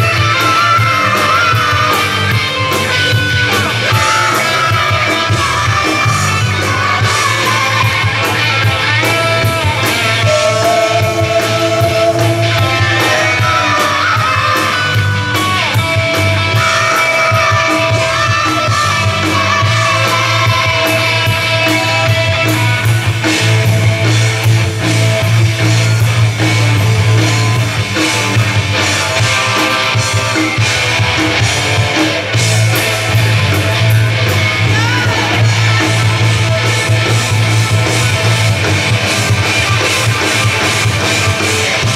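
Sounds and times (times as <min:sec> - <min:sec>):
live rock band playing: 0:00.0 - 0:41.9.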